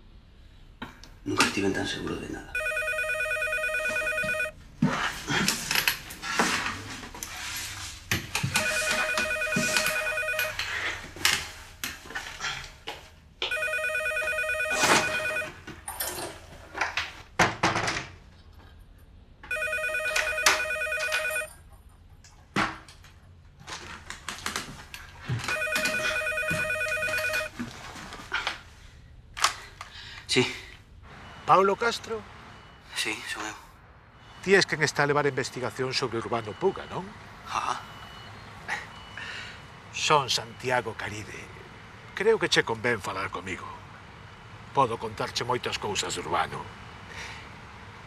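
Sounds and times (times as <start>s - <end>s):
telephone ringing electronic trill: 2.6s - 4.6s, 8.6s - 10.6s, 13.5s - 15.6s, 19.5s - 21.5s, 25.4s - 27.5s.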